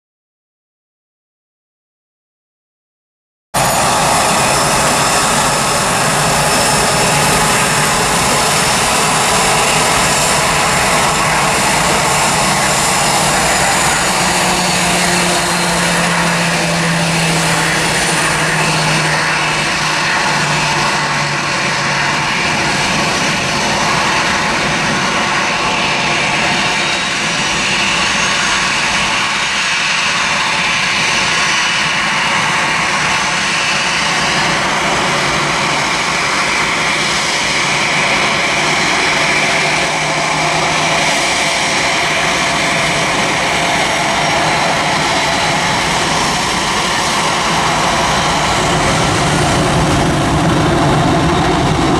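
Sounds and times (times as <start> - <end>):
low hum: 3.6 - 27.6
jet engines whining: 3.6 - 51.9.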